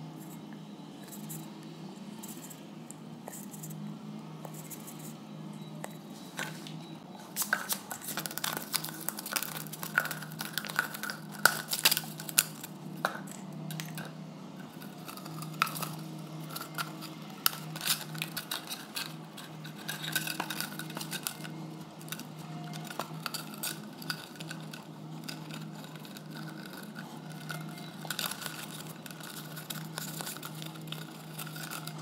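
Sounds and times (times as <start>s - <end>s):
steady low hum: 0.0s - 32.0s
plastic bottles clicking and crinkling: 7.4s - 32.0s.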